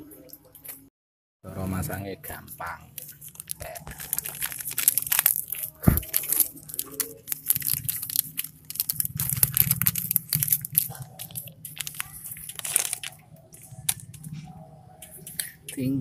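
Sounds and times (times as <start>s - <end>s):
plastic packet crinkling: 2.9s - 14.3s.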